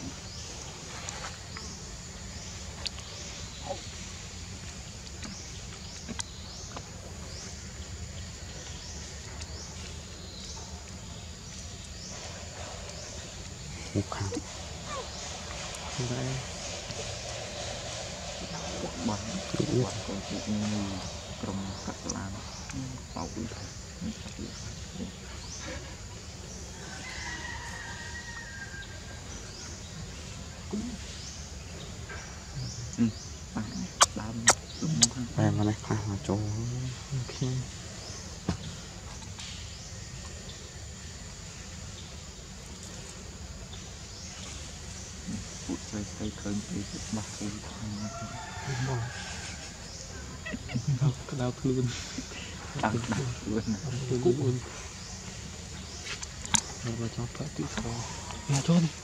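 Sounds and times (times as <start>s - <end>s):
steady low rumble: 0.0s - 26.7s
insect buzzy calling: 0.0s - 59.0s
bird chirps: 11.5s - 26.5s
faint clicks: 56.0s - 56.8s.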